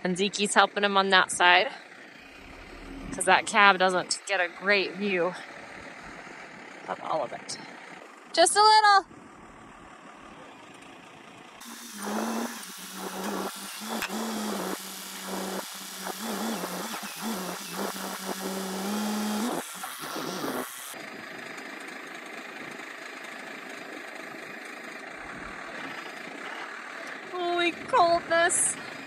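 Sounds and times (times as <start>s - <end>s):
quiet steady rumble: 0.0s - 11.6s, 25.1s - 29.0s
forklift engine droning: 0.6s - 29.0s
rough noise: 2.2s - 5.0s.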